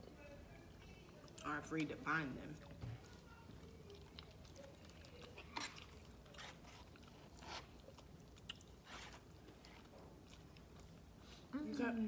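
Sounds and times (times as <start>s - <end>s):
quiet chewing: 0.0s - 11.9s.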